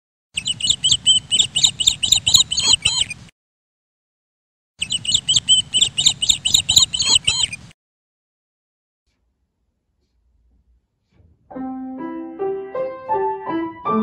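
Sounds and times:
high bird chirps: 0.4s - 3.2s, 4.8s - 7.7s.

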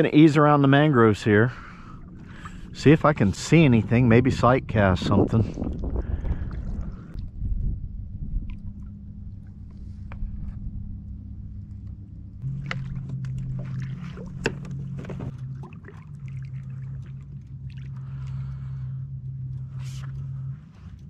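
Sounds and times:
steady low hum: 0.0s - 21.0s
paddle splashes: 12.4s - 18.5s.

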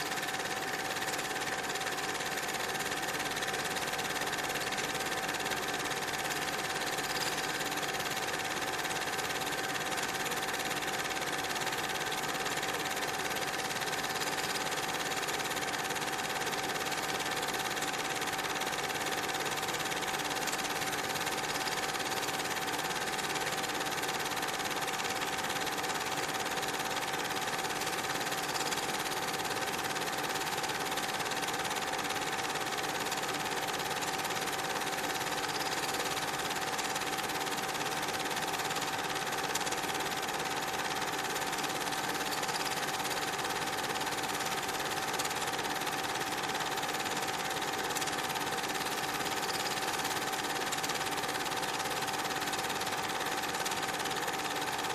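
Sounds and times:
mechanical running hum: 26.8s - 37.8s.

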